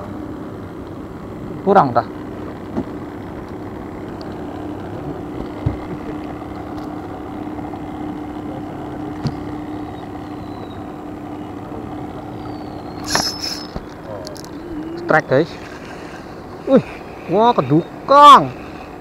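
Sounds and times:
boat engine humming: 0.0s - 19.0s
noisy background: 0.0s - 19.0s
light knocks against boat: 2.7s - 2.9s, 5.4s - 6.0s, 9.2s - 9.5s.

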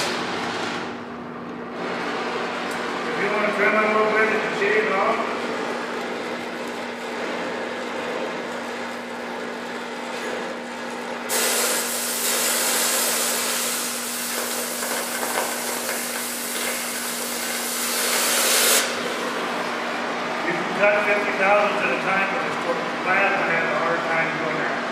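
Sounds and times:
cutting torch flame hiss: 11.3s - 19.0s
loud oxygen jet hiss: 11.3s - 19.0s.

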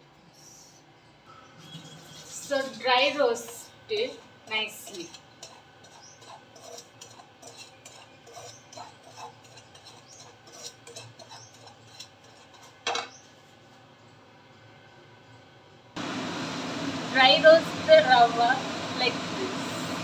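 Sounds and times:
spatula scraping grains in pan: 1.6s - 3.2s, 3.9s - 13.6s.

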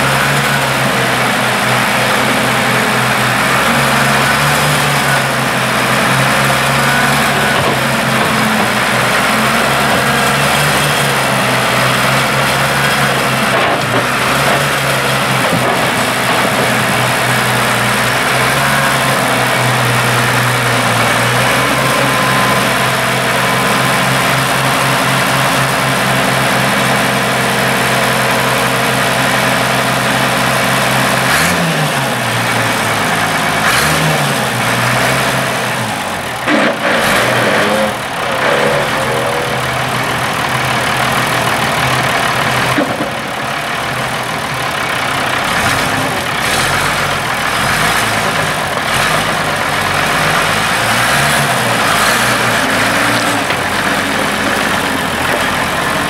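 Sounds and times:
diesel engine idling and revving: 0.0s - 56.0s.

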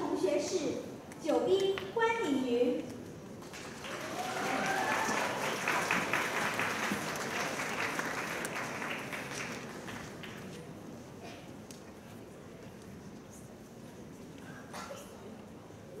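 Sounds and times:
audience applauding: 3.4s - 10.5s.

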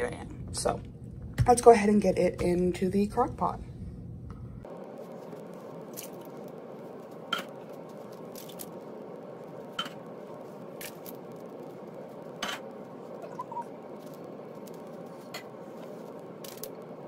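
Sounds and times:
steady hiss: 4.6s - 17.0s.

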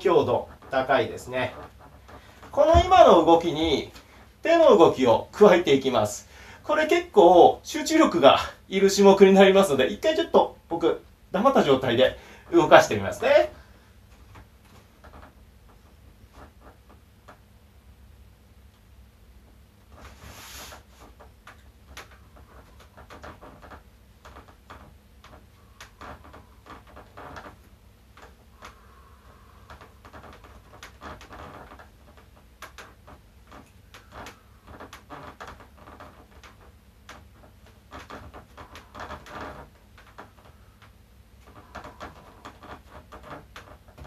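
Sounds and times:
low room hum: 0.0s - 44.0s
clicks and rustles of movement: 0.2s - 4.4s, 13.1s - 17.4s, 19.4s - 44.0s.

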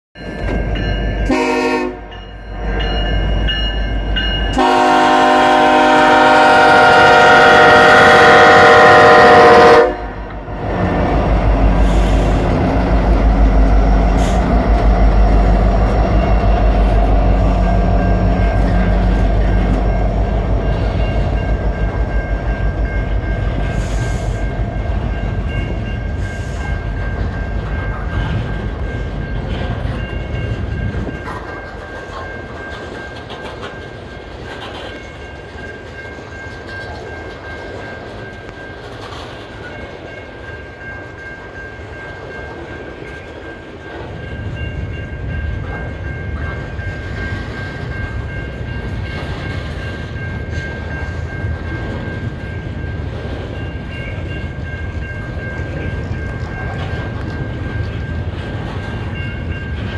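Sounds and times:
diesel locomotive rumble: 0.2s - 40.2s
crossing bell ringing: 0.2s - 59.9s.

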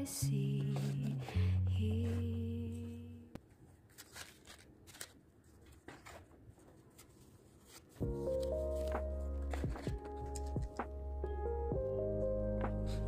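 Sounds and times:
background music: 8.0s - 13.0s.

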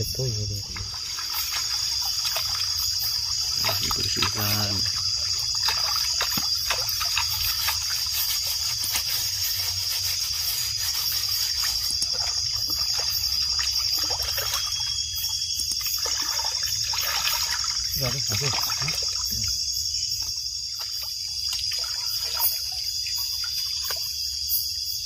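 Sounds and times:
stream water trickling: 0.0s - 25.0s
small splashes of hands: 0.7s - 8.0s, 15.6s - 19.5s, 20.7s - 24.2s.

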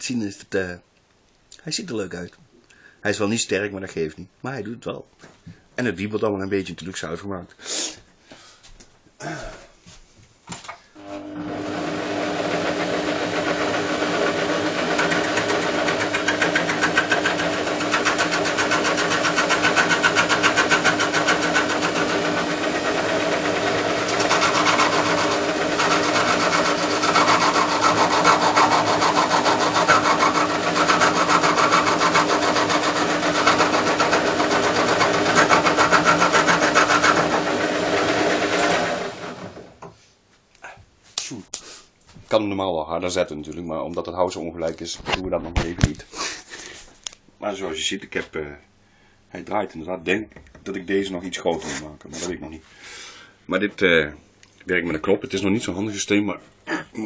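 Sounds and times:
lathe motor humming: 11.0s - 39.8s
chisel scraping spinning log: 11.1s - 39.7s.

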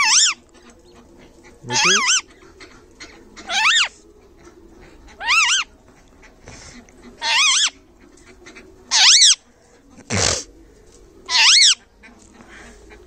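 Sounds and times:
parrot squawking: 0.0s - 0.4s, 1.6s - 2.3s, 3.5s - 3.9s, 5.2s - 5.7s, 7.2s - 7.8s, 8.9s - 9.4s, 11.3s - 11.8s.

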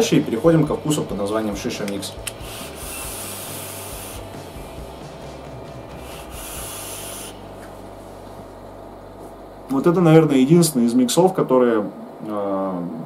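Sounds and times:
low steady hum: 0.0s - 13.0s
e-cigarette coil sizzle and hiss: 2.4s - 4.4s, 5.9s - 7.7s.

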